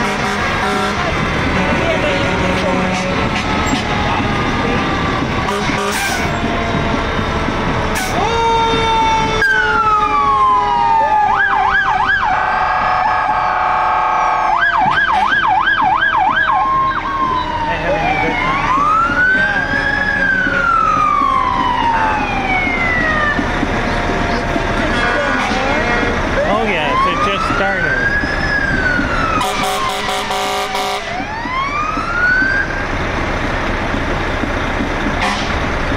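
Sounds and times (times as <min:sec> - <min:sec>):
fire truck siren wailing: 0:00.0 - 0:35.9
siren yelping: 0:07.9 - 0:24.6, 0:26.2 - 0:32.8.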